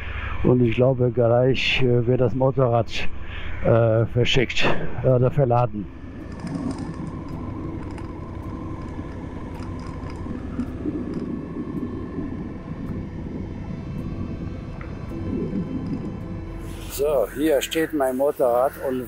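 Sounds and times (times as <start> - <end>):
low engine drone: 0.0 - 19.0
faint ticks: 6.2 - 14.0.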